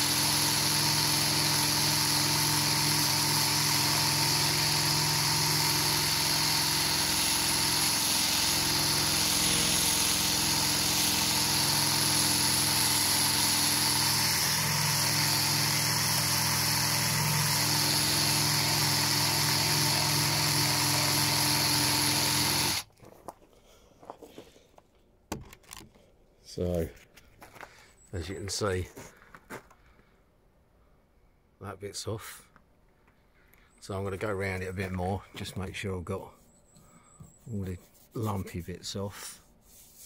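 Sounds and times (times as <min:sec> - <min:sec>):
wire brush power tool on metal: 0:00.0 - 0:22.8.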